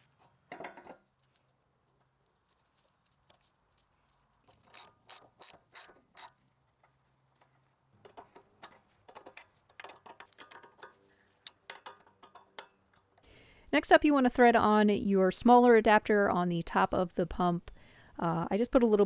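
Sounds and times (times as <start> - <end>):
ratcheting wrench clicking: 4.6 - 6.4.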